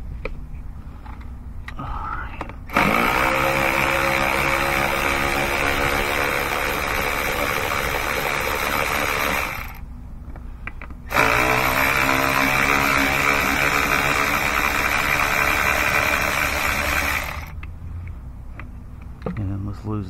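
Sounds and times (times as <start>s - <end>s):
cordless ratchet running: 2.7s - 9.8s, 11.1s - 17.6s.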